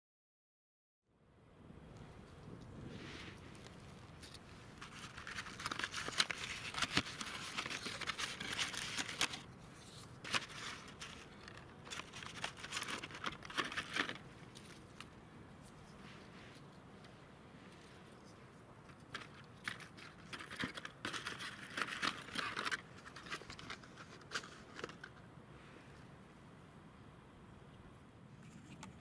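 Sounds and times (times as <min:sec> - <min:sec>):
cardboard and paper crinkling: 0:03.3 - 0:16.7, 0:17.7 - 0:25.2.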